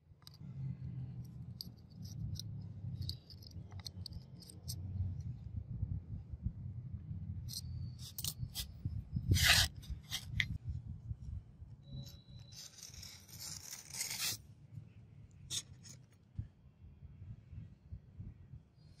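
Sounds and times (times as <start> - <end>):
metal scraping on wooden board: 9.3 - 10.6.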